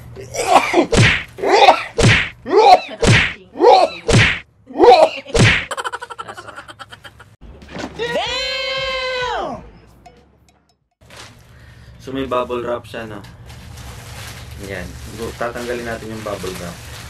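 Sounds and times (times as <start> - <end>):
man coughing muffled: 0.2 - 1.9.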